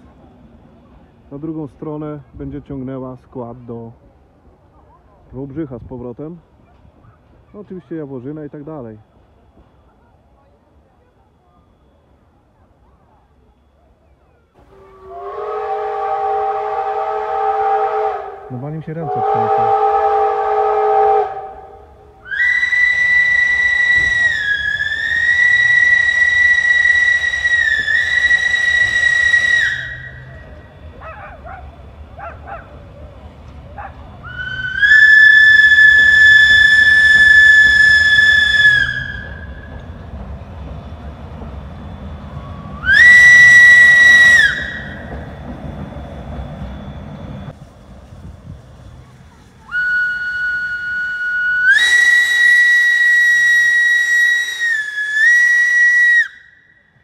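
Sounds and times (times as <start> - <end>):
steam locomotive whistle: 14.6 - 31.1, 34.2 - 40.0, 41.8 - 45.6, 49.6 - 57.0.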